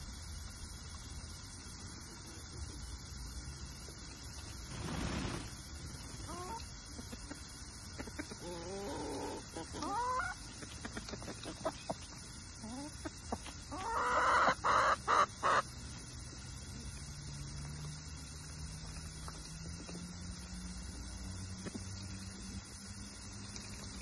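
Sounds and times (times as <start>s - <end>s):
chicken clucking: 6.3s - 15.6s
chicken squawking: 8.7s - 10.4s, 13.7s - 15.6s.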